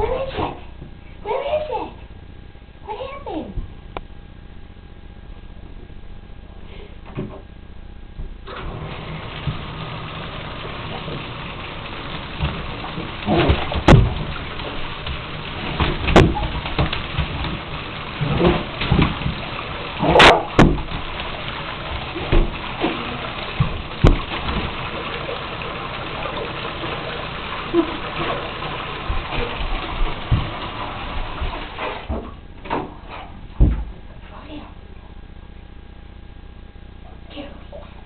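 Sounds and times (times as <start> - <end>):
splashes and knocks in tub: 8.5 - 34.1
water running into bathtub: 8.5 - 34.2.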